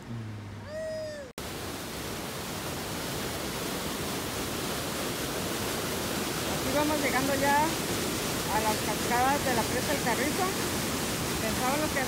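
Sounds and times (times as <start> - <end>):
water rushing over rocks: 1.4 - 12.0.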